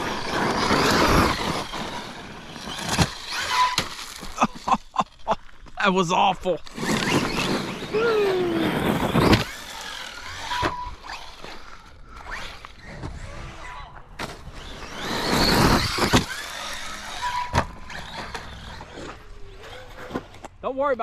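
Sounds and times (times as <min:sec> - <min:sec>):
toy truck hitting the ground: 0:00.1 - 0:04.6, 0:08.8 - 0:11.6, 0:14.2 - 0:20.5
electric motor whining: 0:06.8 - 0:13.8, 0:14.5 - 0:20.4.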